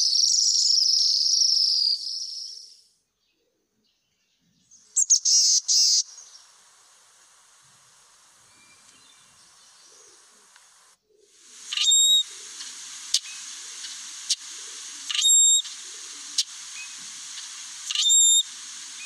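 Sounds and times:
soft chirp: 4.4s - 19.0s
faint hiss: 4.7s - 19.0s
blackbird creaky squeaky song: 5.0s - 6.4s, 11.6s - 19.0s
sharp bird call notes: 11.5s - 19.0s.

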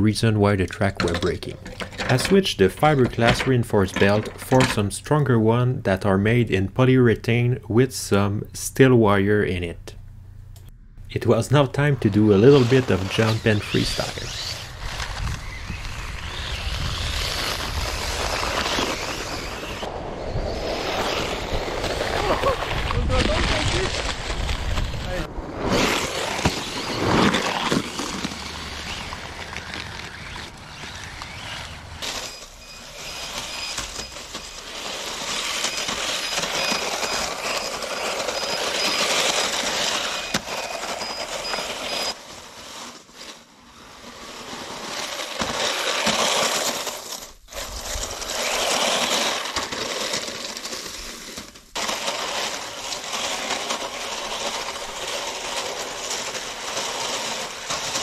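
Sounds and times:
plastic tracks churning on snow: 2.1s - 4.8s, 11.5s - 58.0s
high motor whine: 12.4s - 22.6s.

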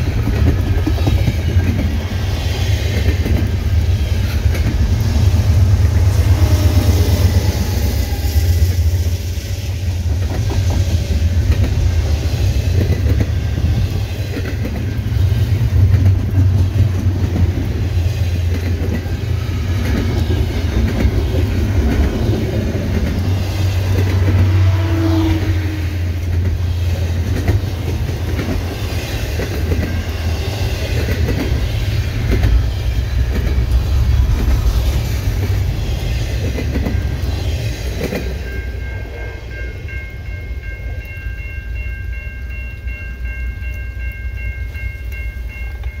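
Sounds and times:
train wheels clicking over rail joints: 0.0s - 39.2s
locomotive engine rumble: 0.0s - 45.9s
high-pitched ringing tones: 38.3s - 46.0s.

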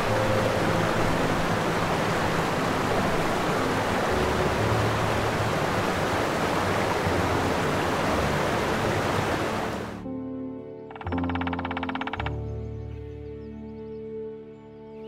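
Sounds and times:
sea water rushing: 0.0s - 10.0s.

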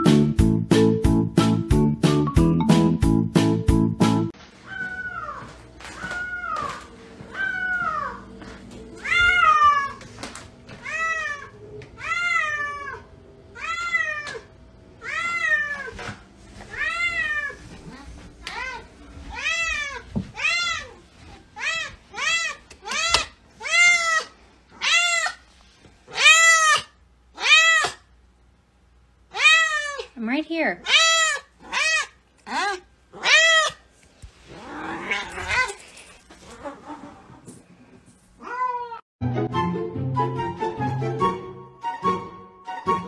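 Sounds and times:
cat meowing: 4.7s - 8.2s, 9.0s - 10.0s, 10.8s - 16.0s, 16.7s - 21.0s, 26.1s - 28.0s, 29.3s - 30.1s, 30.8s - 33.8s, 38.4s - 39.0s.

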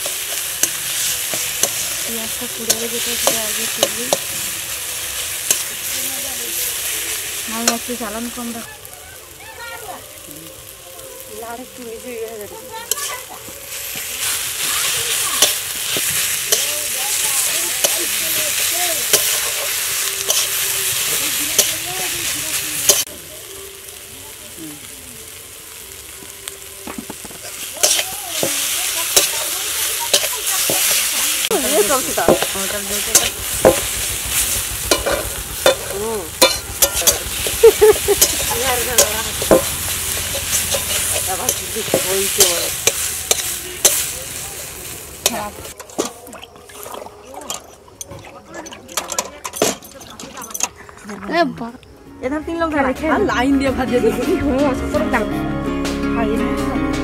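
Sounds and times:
spatula scraping steel wok: 0.0s - 8.6s, 12.8s - 23.1s, 27.4s - 46.2s
food sizzling in oil: 0.0s - 48.1s.

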